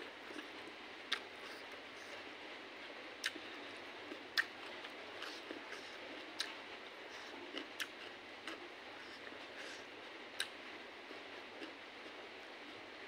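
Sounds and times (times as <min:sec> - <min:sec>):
person chewing food: 0:00.3 - 0:02.1, 0:03.2 - 0:09.8, 0:10.4 - 0:12.2.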